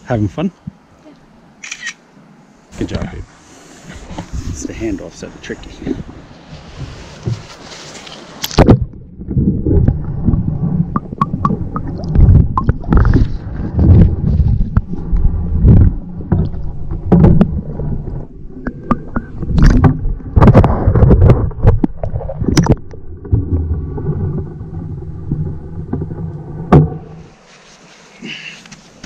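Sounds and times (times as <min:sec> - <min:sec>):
muffled underwater churning: 0:02.8 - 0:27.5
fish thrashing and knocking: 0:18.9 - 0:23.8.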